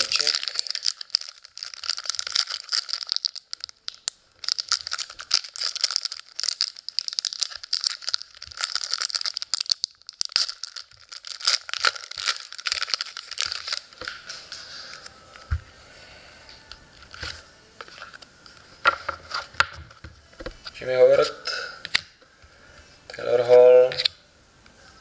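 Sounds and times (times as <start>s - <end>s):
foil wrapper crinkling and tearing: 0.0s - 15.4s.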